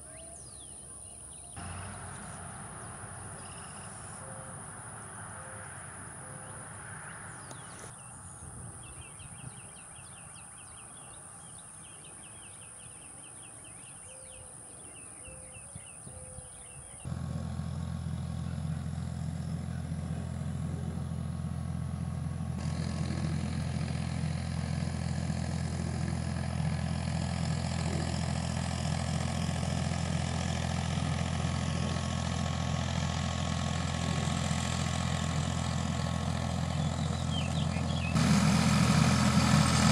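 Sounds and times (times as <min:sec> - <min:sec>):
insects chirping: 0:00.0 - 0:08.4
tractor diesel engine under load: 0:01.6 - 0:12.6, 0:17.0 - 0:39.9.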